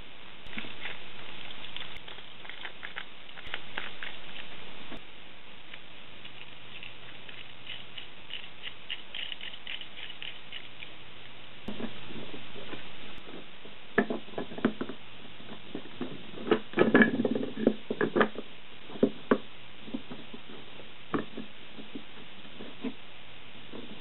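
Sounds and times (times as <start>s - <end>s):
knocks and clatter of parts on workbench: 14.0s - 15.0s, 15.8s - 18.4s.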